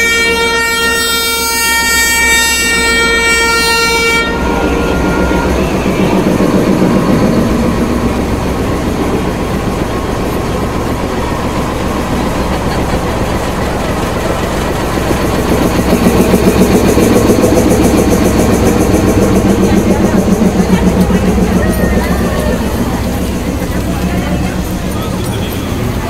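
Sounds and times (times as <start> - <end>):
locomotive engine rumble: 0.0 - 26.0.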